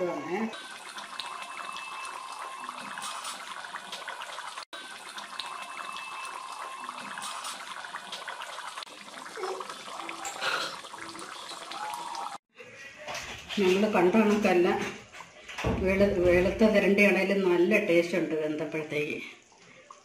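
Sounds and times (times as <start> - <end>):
curry bubbling in a pan: 0.5 - 12.4.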